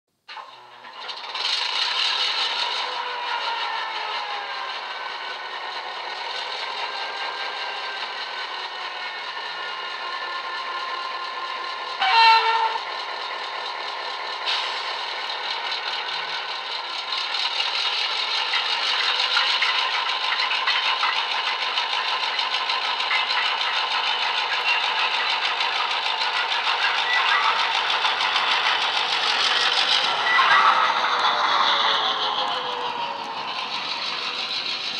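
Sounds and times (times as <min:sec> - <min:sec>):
diesel engine idling from speaker: 0:09.2 - 0:34.9
locomotive horn blast: 0:12.0 - 0:12.9.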